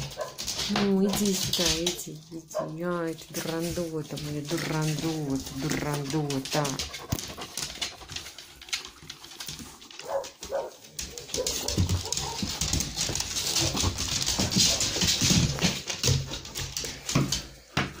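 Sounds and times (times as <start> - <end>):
dogs moving about: 0.0 - 18.0.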